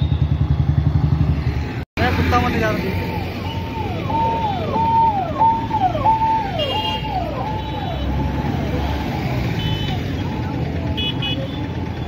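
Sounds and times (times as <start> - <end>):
low traffic rumble: 0.0 - 12.0
electronic siren wailing: 2.8 - 11.0.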